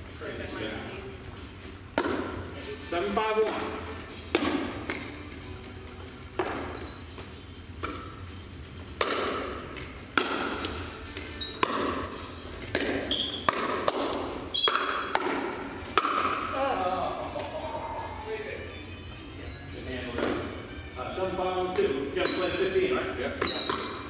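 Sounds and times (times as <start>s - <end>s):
paddles hitting plastic ball: 1.9s - 2.4s, 3.4s - 6.8s, 8.9s - 17.7s, 23.3s - 24.0s
shoe squeaks: 6.6s - 8.3s, 9.3s - 10.0s, 11.2s - 13.5s, 14.4s - 15.2s, 21.1s - 22.8s, 23.4s - 24.0s.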